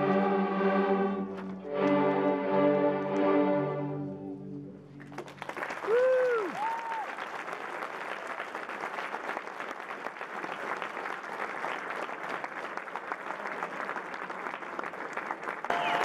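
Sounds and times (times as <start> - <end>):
audience applauding: 5.0 - 16.0
whooping cheers: 5.8 - 7.3.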